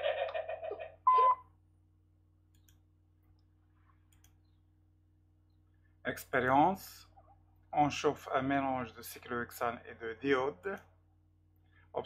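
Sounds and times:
faint low hum: 0.0s - 12.0s
short electronic beep: 1.1s - 1.4s.

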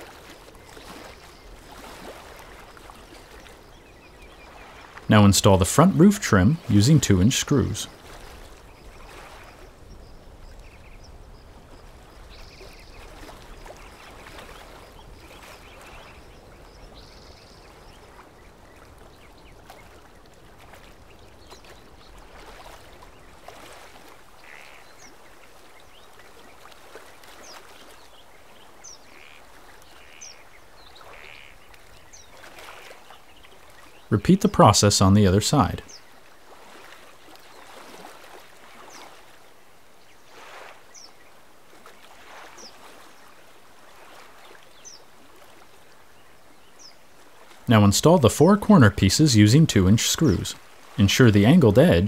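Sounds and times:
faint animal calls: 29.1s - 30.4s, 31.0s - 31.6s.

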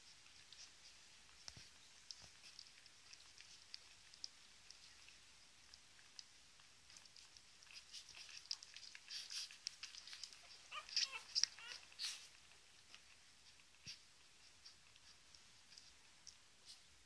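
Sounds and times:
puppies suckling wet clicking: 0.0s - 17.0s
puppies squeaking: 7.6s - 12.5s.

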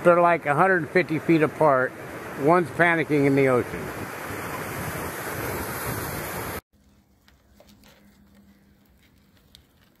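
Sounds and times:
wind buffeting microphone: 3.0s - 6.6s.

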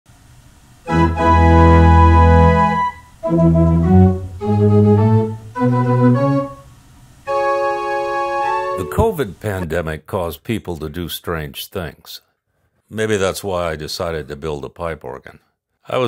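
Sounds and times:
pipe organ playing chords: 0.9s - 6.7s, 7.3s - 9.4s.

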